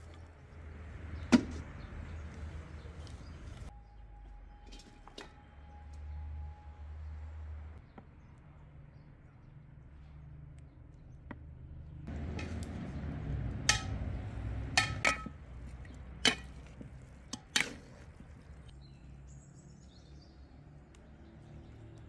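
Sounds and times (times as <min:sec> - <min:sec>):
spatula stirring food in pot: 0:14.8 - 0:18.8.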